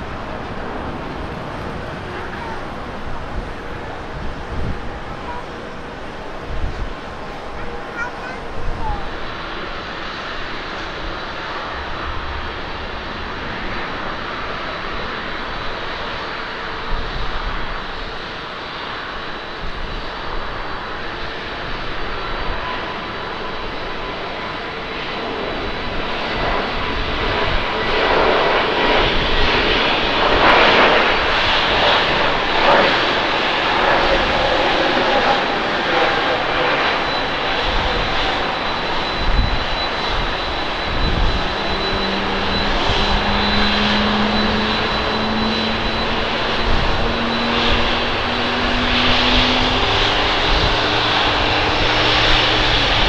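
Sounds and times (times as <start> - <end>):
jet engines roaring at takeoff: 0.0 - 53.0.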